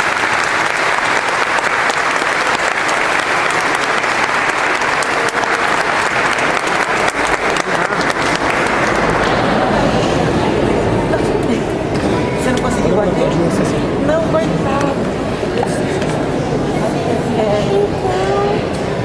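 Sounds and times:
crowd applauding: 0:00.0 - 0:11.9.

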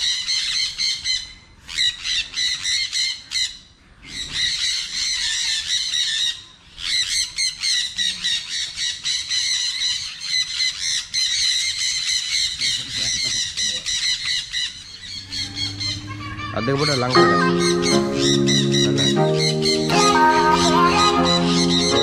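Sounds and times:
parrots screeching: 0:00.0 - 0:19.9, 0:21.3 - 0:22.0.

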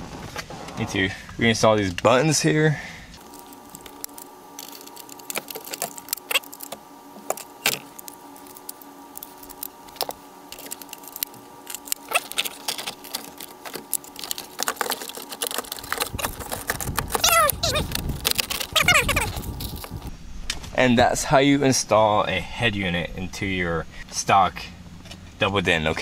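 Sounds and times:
plastic clicks and rattles: 0:09.2 - 0:19.8.

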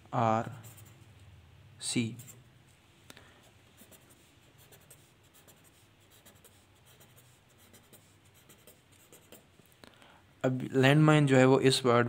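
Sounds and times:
pen scratching on paper: 0:00.5 - 0:01.0, 0:03.7 - 0:09.6.

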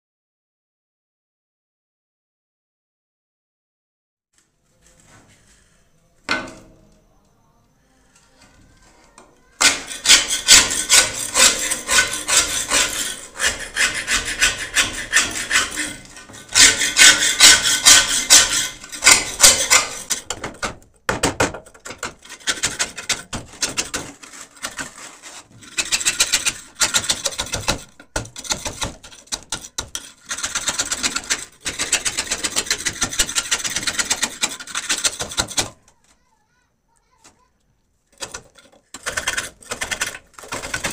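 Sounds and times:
scraper scraping rusty metal: 0:08.3 - 0:20.8, 0:21.6 - 0:36.3, 0:38.1 - 0:40.9.

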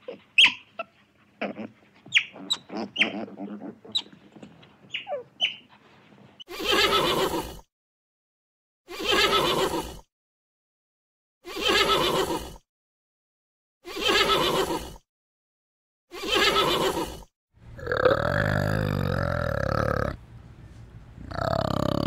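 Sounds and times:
horse whinnying: 0:06.5 - 0:07.5, 0:08.9 - 0:09.9, 0:11.6 - 0:12.4, 0:13.9 - 0:14.9, 0:16.2 - 0:17.2
deeper animal call: 0:17.7 - 0:20.2, 0:21.2 - 0:22.0.

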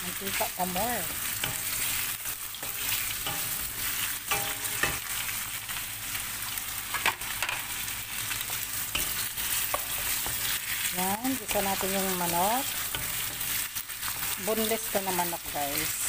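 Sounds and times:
chicken sizzling in hot oil: 0:00.0 - 0:16.0
wooden spoon scraping a pan: 0:08.4 - 0:14.8.

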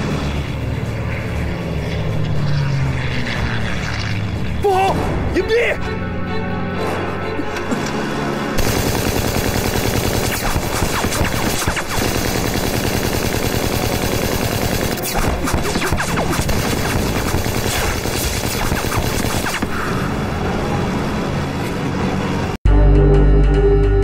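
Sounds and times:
machine guns firing bursts: 0:08.6 - 0:19.7.

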